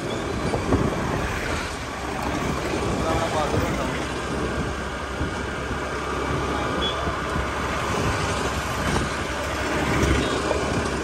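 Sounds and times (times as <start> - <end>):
motorbike engine and road noise: 0.0 - 11.0
passing traffic: 0.0 - 11.0.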